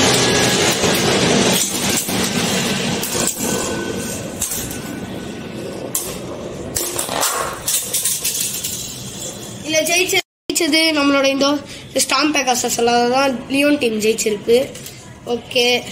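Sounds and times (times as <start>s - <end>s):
spinning tops whirring and grinding: 0.0s - 10.2s.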